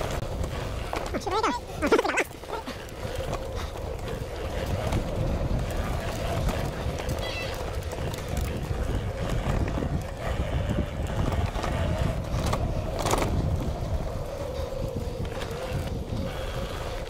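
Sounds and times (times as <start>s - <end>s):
tyres rolling on dirt: 0.0s - 17.0s
wind buffeting microphone: 0.0s - 17.0s.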